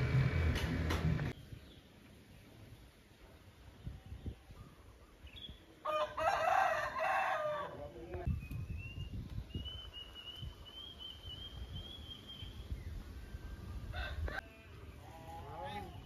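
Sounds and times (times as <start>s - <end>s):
rooster crowing: 5.8s - 7.8s.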